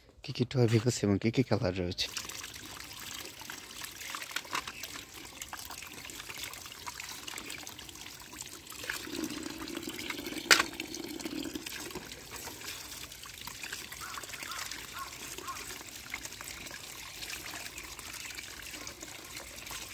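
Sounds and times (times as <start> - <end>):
tap water splashing on plastic: 2.1 - 6.5, 9.9 - 19.9.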